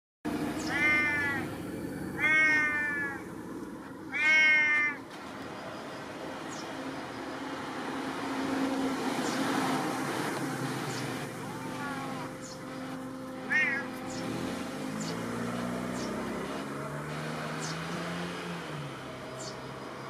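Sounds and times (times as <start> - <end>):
cat meowing: 0.6 - 1.6, 2.2 - 3.2, 4.1 - 5.0, 11.4 - 12.6, 13.4 - 14.1.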